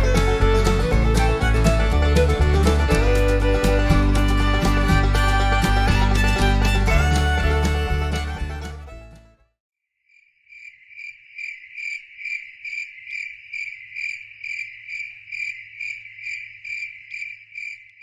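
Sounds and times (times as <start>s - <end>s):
cricket chirping: 10.1s - 18.0s.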